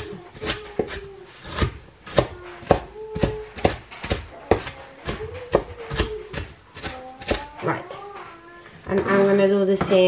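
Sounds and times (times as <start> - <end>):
knife chopping on plastic board: 0.0 - 7.5.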